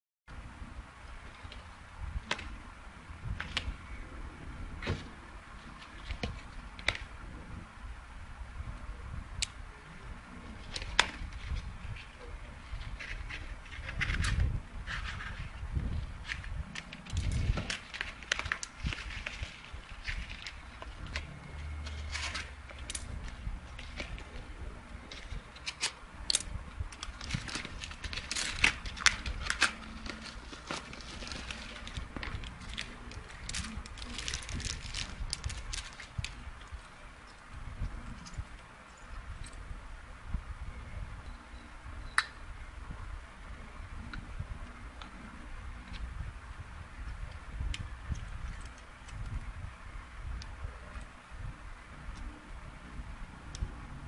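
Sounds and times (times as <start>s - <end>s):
paper rustling: 10.6s - 26.0s, 27.0s - 36.4s
paper envelope tearing: 27.1s - 36.4s
plastic bag crinkling: 27.1s - 36.4s.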